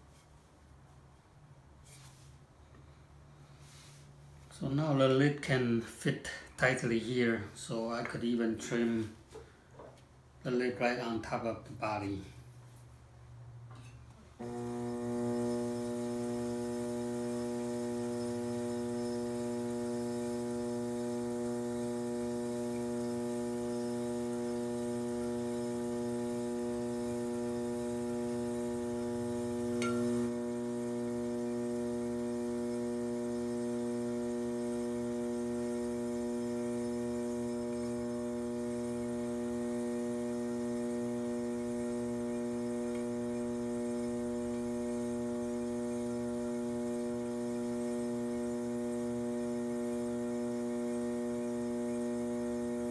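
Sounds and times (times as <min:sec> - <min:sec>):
potter's wheel motor humming: 0:14.4 - 0:52.9.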